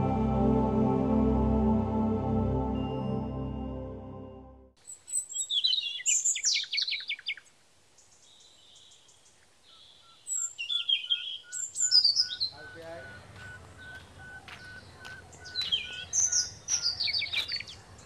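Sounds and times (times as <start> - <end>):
soft ambient music: 0.0 - 4.8
birds chirping and singing: 4.9 - 18.0.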